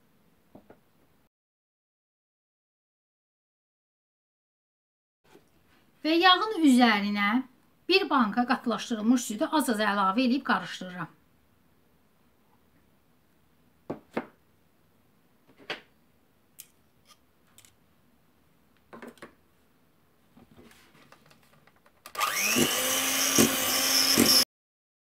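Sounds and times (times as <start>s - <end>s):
electric hand mixer whining: 22.1s - 24.5s.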